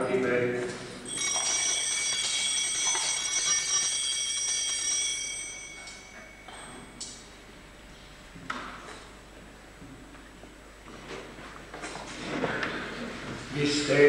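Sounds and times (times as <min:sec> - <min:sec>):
altar bells ringing: 0:01.0 - 0:07.1.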